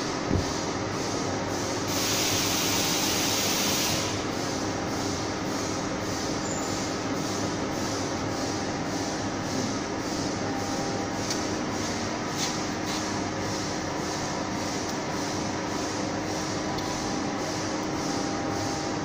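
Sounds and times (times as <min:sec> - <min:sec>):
loud hiss: 0:01.9 - 0:04.2.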